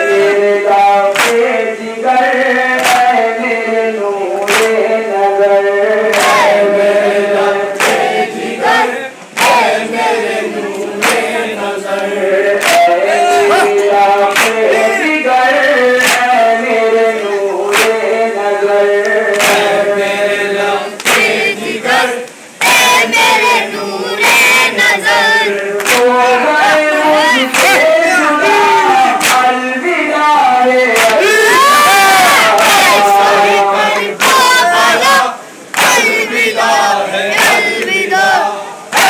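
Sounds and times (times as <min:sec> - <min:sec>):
men chanting together: 0:00.0 - 0:39.0
chest-beating slaps: 0:01.1 - 0:01.4, 0:04.4 - 0:04.8, 0:07.8 - 0:08.1, 0:11.0 - 0:11.3, 0:12.6 - 0:13.0, 0:14.3 - 0:14.8, 0:16.0 - 0:16.3, 0:17.7 - 0:18.0, 0:19.3 - 0:19.7, 0:29.2 - 0:29.5.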